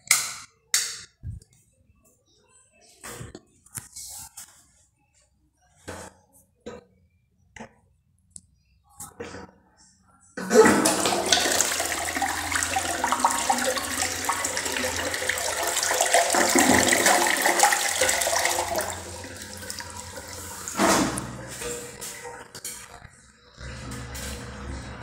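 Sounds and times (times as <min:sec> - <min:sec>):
toilet flushing: 0:10.4 - 0:22.8, 0:23.6 - 0:25.0
running water: 0:10.4 - 0:23.0.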